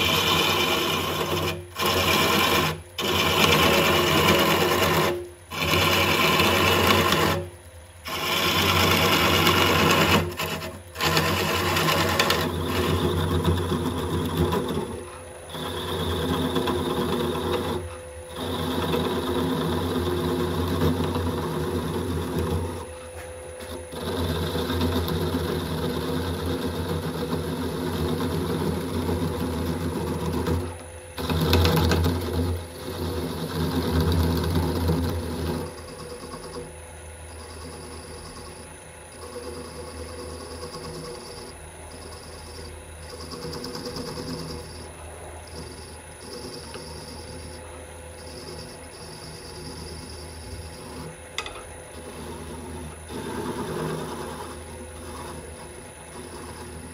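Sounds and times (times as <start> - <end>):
gouge cutting wood: 0.0 - 22.9, 23.6 - 36.7, 48.4 - 56.9
lathe motor hum: 0.0 - 56.9.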